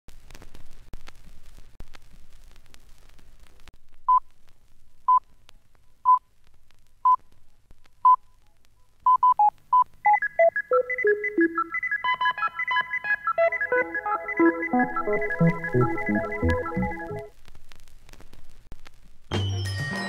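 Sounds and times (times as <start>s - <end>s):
falling bleeping notes: 10.1s - 17.3s
upbeat music: 10.1s - 17.3s.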